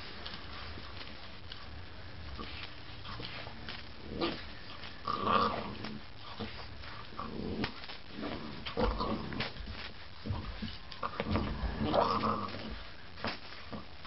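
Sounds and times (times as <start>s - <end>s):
puppy growling: 2.3s - 12.9s.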